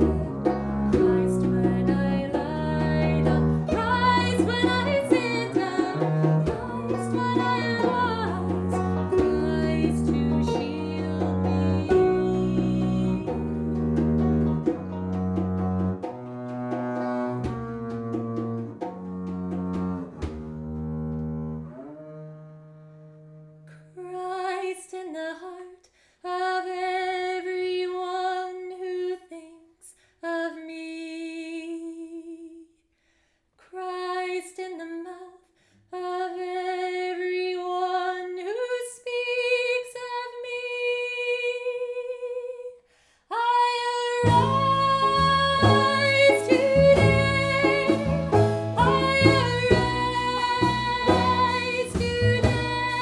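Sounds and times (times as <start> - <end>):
woman singing: 0.0 - 13.7, 23.7 - 32.8, 33.6 - 53.0
folk band playing: 0.0 - 21.5, 44.2 - 53.0.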